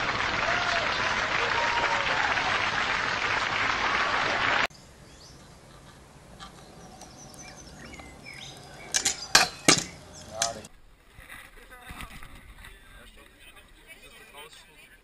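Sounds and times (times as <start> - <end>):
audience applause: 0.0 - 4.7
faint bird chirps: 4.7 - 9.4.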